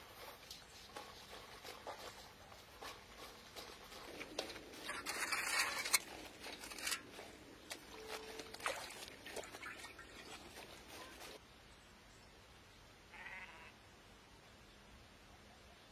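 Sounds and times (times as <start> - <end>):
wet fabric sloshing in water: 4.8 - 11.4.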